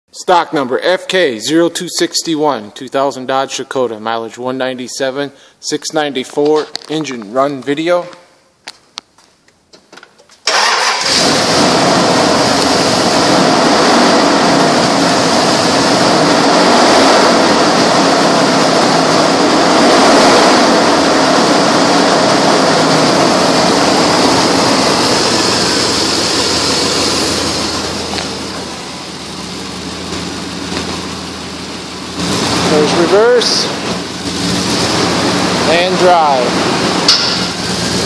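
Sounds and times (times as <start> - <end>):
car engine idling: 10.5 - 38.0.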